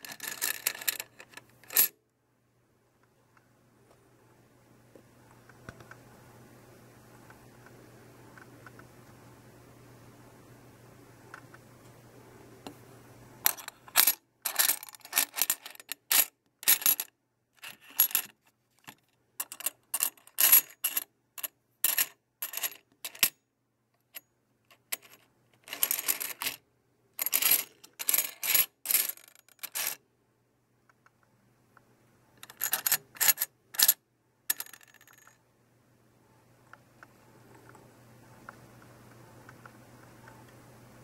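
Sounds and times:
metal coins clinking: 0.0s - 1.9s, 13.5s - 17.1s, 17.7s - 18.3s, 19.4s - 23.4s, 24.9s - 26.6s, 27.2s - 30.0s, 32.4s - 35.4s
faint low hum: 0.0s - 41.0s.

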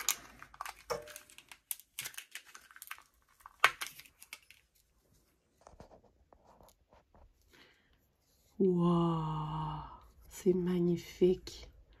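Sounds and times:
plastic packaging crinkling and tearing: 0.0s - 5.0s.

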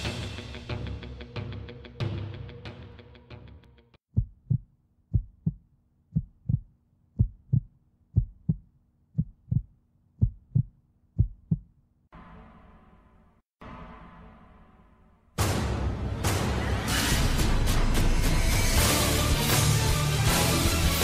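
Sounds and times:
heartbeat thumps: 4.1s - 11.8s.

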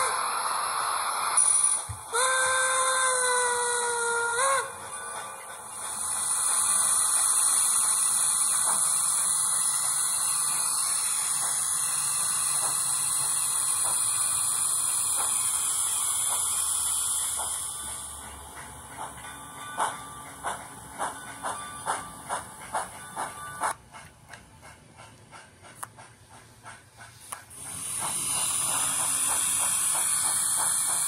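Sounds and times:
steam hiss from small speaker: 0.0s - 19.2s, 26.6s - 31.0s.

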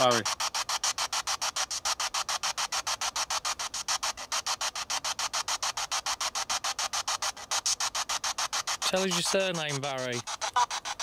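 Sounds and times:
radio static bursts: 0.0s - 11.0s.

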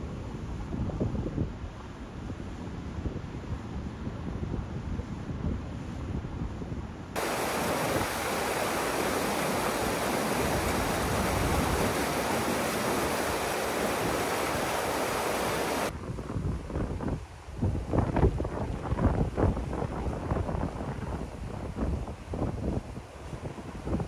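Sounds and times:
wind buffeting microphone: 0.3s - 24.0s
river rushing through rapids: 7.2s - 15.9s.

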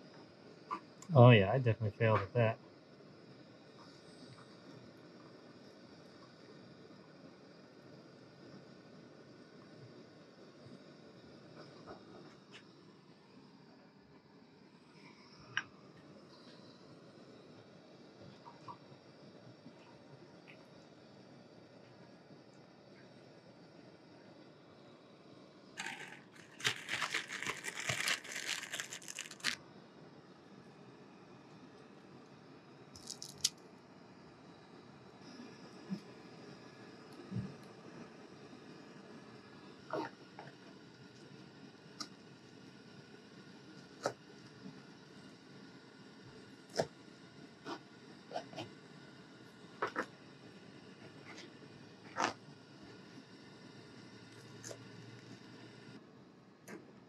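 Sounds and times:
plastic wrapper crinkling: 25.8s - 29.6s, 33.0s - 33.5s.

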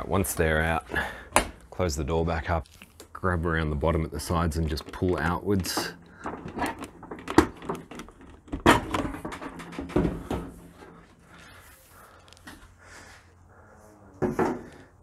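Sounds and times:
metal door panel knocking and rattling: 5.8s - 10.6s.

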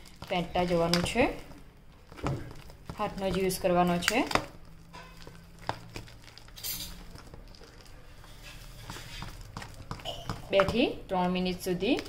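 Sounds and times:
batter slapping in steel bowl: 2.1s - 12.0s.

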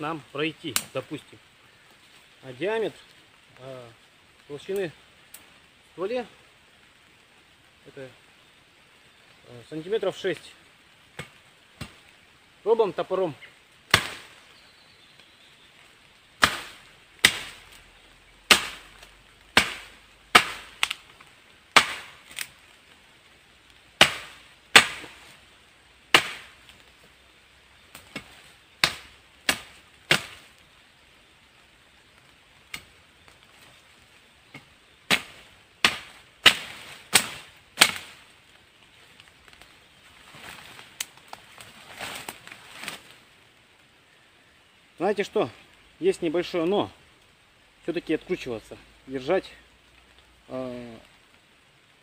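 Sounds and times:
axe chopping wood: 13.9s - 14.3s, 16.4s - 17.6s, 18.5s - 18.9s, 19.6s - 21.0s, 21.8s - 22.4s, 24.0s - 25.2s, 26.1s - 26.5s, 28.0s - 30.4s, 34.5s - 38.1s.

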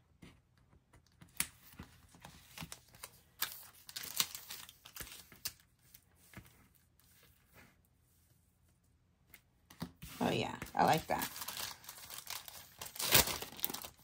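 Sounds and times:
paper and plastic crinkling: 1.5s - 7.3s, 10.1s - 14.0s.

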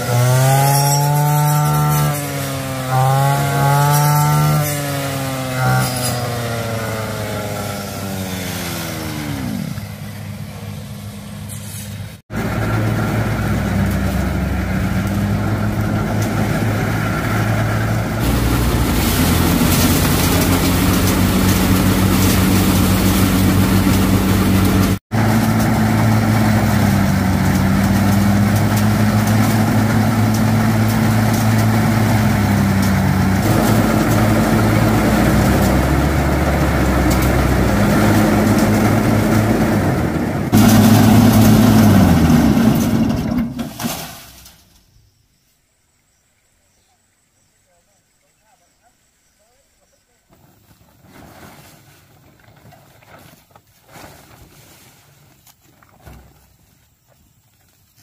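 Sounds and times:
thresher engine running: 0.0s - 11.5s, 12.3s - 43.9s
brush cutter engine: 0.0s - 43.6s.

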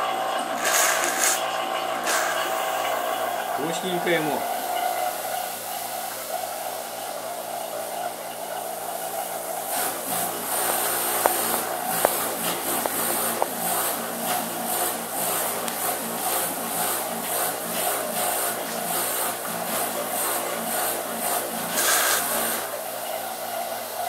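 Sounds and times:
refrigerator compressor humming: 0.0s - 24.0s
fluttering hiss: 21.7s - 22.7s.

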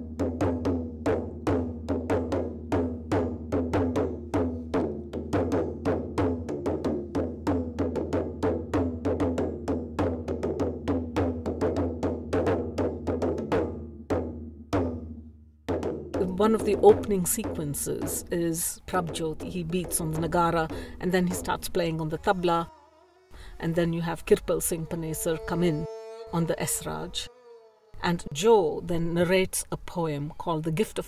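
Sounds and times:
fast pitched drumming: 15.7s - 22.9s.

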